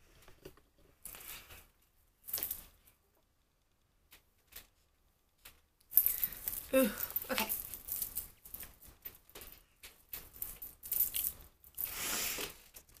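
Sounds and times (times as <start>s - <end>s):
metal chain clicking: 5.9s - 12.0s.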